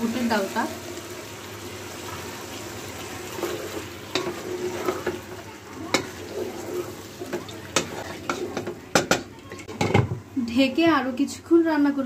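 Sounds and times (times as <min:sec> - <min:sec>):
steady sizzle: 0:00.0 - 0:12.0
spatula stirring curry: 0:00.8 - 0:09.8
spatula knocking against pot: 0:07.3 - 0:10.1.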